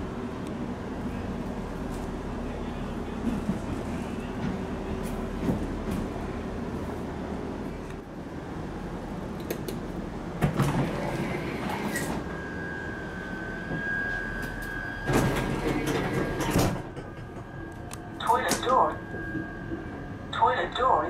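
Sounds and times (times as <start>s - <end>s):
train running rumble: 0.0s - 21.0s
powered sliding door opening: 10.4s - 12.3s, 14.4s - 17.2s.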